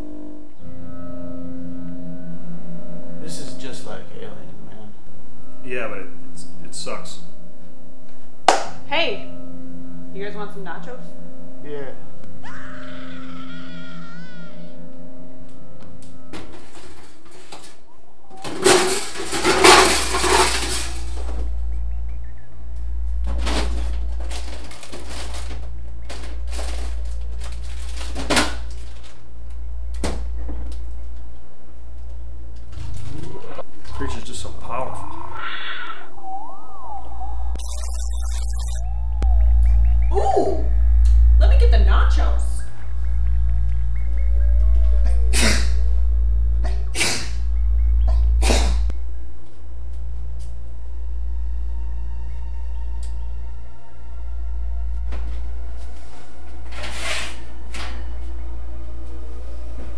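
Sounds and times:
steady low hum: 0:00.0 - 0:35.3, 0:36.1 - 0:59.9
refrigerator hum: 0:18.3 - 0:35.0
packages rustling: 0:18.4 - 0:21.4, 0:23.3 - 0:29.3.

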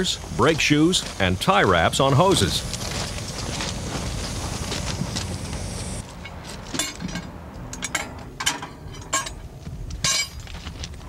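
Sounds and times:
metallic clinks and knocks: 0:06.2 - 0:10.8.

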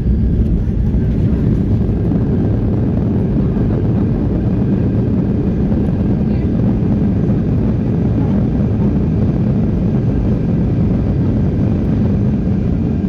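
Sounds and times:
jet engine noise: 0:00.0 - 0:13.0
wheels rumbling on runway: 0:00.0 - 0:13.0.

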